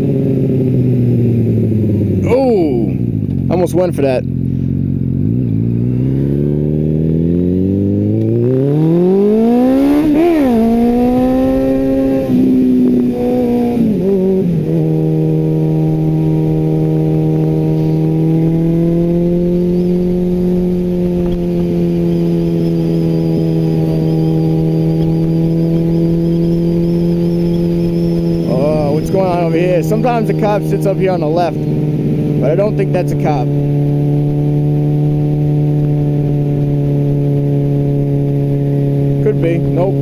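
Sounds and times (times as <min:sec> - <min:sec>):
motorcycle engine revving: 0:00.0 - 0:40.0.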